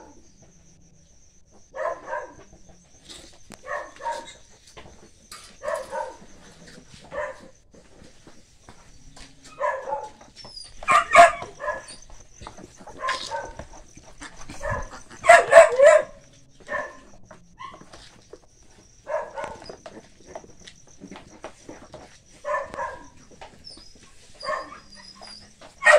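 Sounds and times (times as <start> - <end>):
piglets squealing: 14.1 - 15.5.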